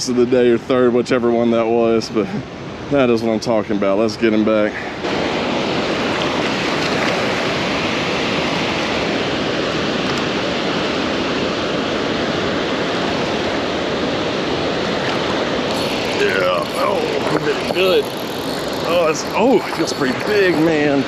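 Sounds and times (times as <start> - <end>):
water rushing through spillway: 5.0 - 21.0.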